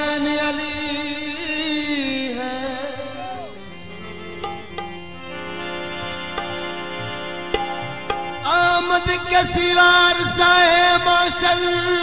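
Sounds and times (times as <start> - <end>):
man singing: 0.0 - 4.6, 8.4 - 12.0
harmonium chords: 0.0 - 12.0
percussion strokes: 4.3 - 9.6.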